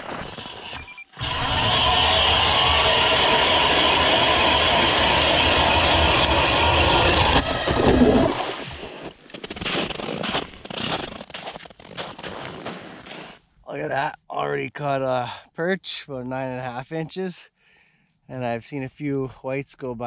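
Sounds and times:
ice auger drilling: 0:00.0 - 0:11.3
footsteps crunching on snow: 0:08.8 - 0:13.4.

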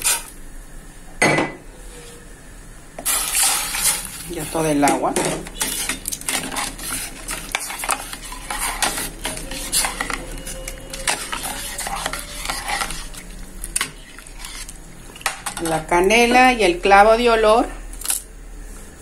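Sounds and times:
metal spoon scraping a pot: 0:03.0 - 0:15.8.

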